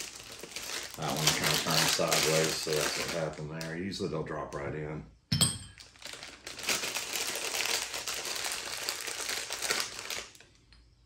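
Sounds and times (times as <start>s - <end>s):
plastic bag crinkling: 0.0s - 3.8s, 5.8s - 10.6s.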